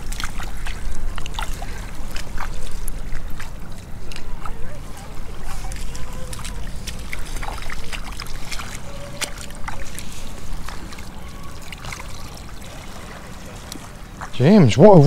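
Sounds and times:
seawater trickling and splashing: 0.0 - 15.0.

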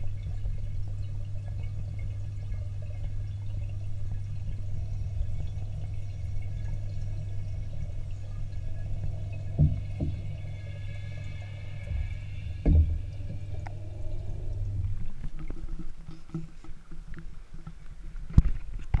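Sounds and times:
underwater hum: 0.0 - 19.0
water noise: 0.0 - 19.0
knock: 9.6 - 10.2, 12.6 - 13.0.

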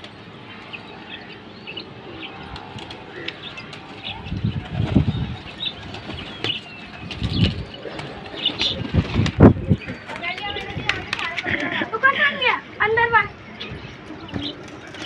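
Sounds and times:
pigeon wings flapping: 5.8 - 12.0.

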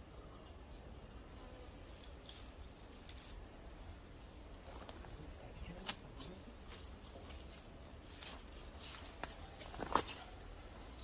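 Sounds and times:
soft rustles: 4.6 - 11.0.

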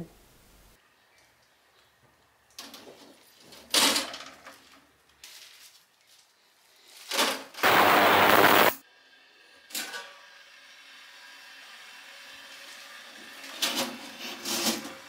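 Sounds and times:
loud rush of noise: 7.6 - 8.8.

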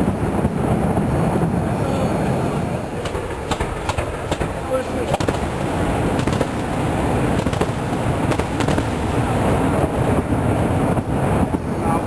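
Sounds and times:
firework shells bursting: 2.9 - 11.6
sharp firework cracks: 2.9 - 11.6.

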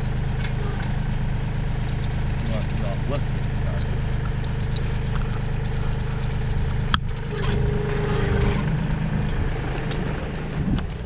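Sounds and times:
diesel tractor engine running: 0.0 - 11.0
engine whine under load: 0.0 - 11.0
metallic chain clink: 1.8 - 7.6.

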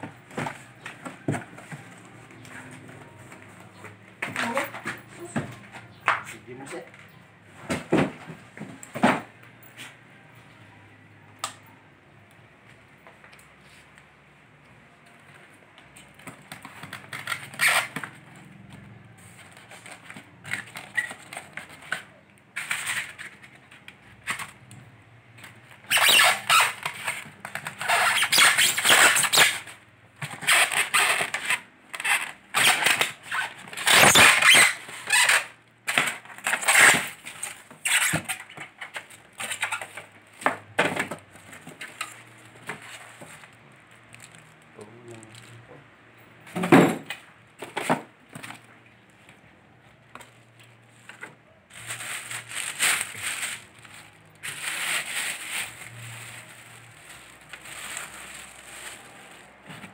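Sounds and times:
foam squeaking against cardboard: 17.1 - 18.1, 25.8 - 29.8, 30.4 - 40.0.

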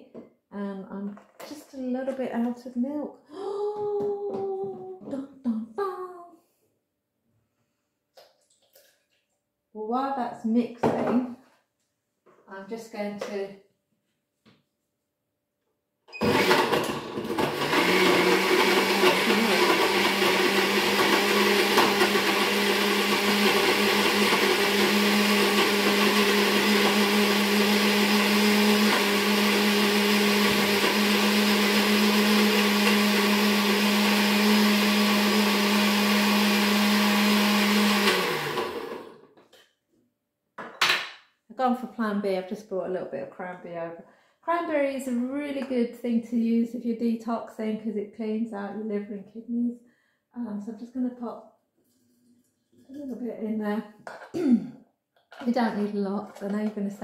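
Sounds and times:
blender motor running: 16.2 - 39.2.

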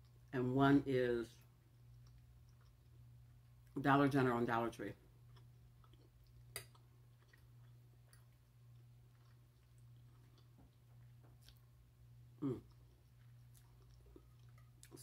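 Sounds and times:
chewing and mouth clicks: 1.6 - 3.8, 5.3 - 15.0.

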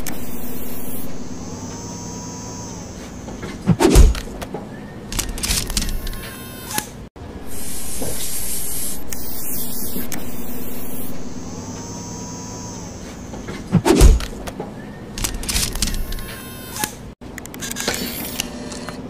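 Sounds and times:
spray nozzle hissing: 0.0 - 3.0, 7.5 - 13.3
short machine whir: 0.0 - 3.4, 5.1 - 13.4, 15.2 - 19.0
mechanical clicks and clatter: 5.1 - 6.9, 15.2 - 19.0.

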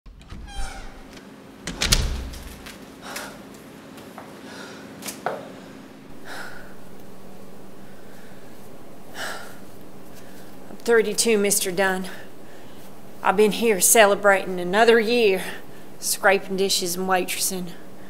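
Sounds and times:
steady low hum: 0.1 - 18.0
woman breathing hard: 4.4 - 5.0, 5.6 - 7.0, 7.6 - 10.7, 12.1 - 13.1.

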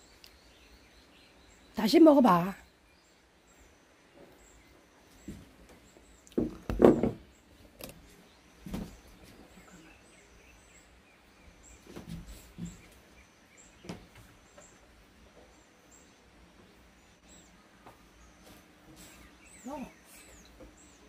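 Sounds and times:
bird chirping: 0.0 - 21.0
soft knocks: 6.3 - 7.3.

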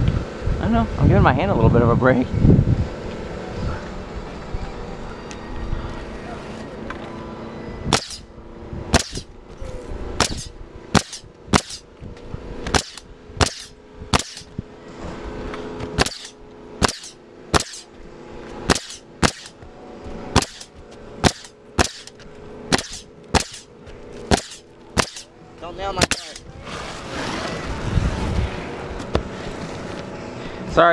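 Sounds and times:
nail gun firing: 7.9 - 8.3, 8.9 - 9.3, 10.2 - 11.9, 12.7 - 14.5, 16.0 - 17.9, 18.7 - 19.6, 20.3 - 23.7, 24.3 - 25.3, 26.0 - 26.5.

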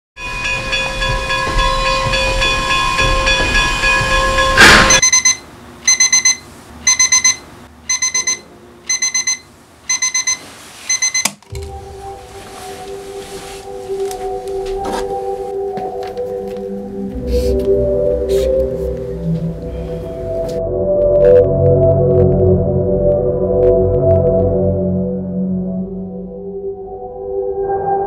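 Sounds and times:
train rumble: 0.2 - 5.0
alarm clock beeping: 0.2 - 11.3
loud crash: 4.5 - 5.0.

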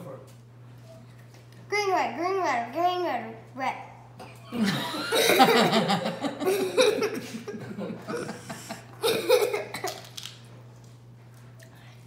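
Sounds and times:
girl laughing and giggling: 4.6 - 9.7.

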